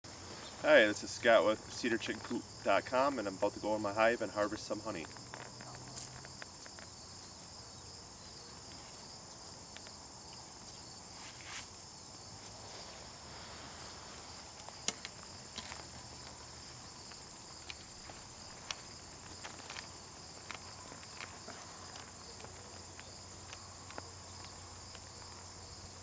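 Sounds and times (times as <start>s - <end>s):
insects chirring in a high trill: 0.1s - 26.0s
footsteps: 8.6s - 26.0s.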